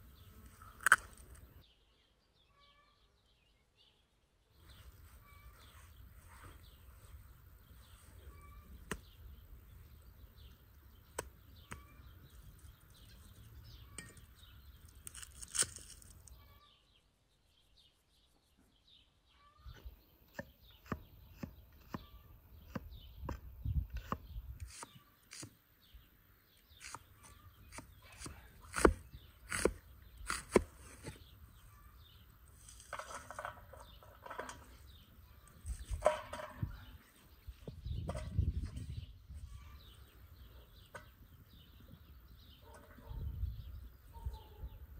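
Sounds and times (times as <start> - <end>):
birds chirping: 0.0 - 44.9.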